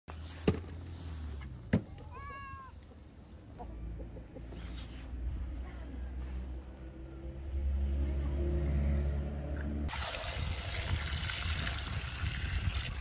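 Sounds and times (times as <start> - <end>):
cat meowing: 2.0 - 2.9.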